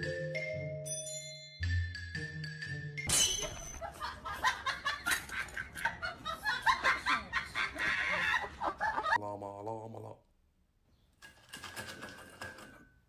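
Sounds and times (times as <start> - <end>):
people laughing: 3.8 - 9.6.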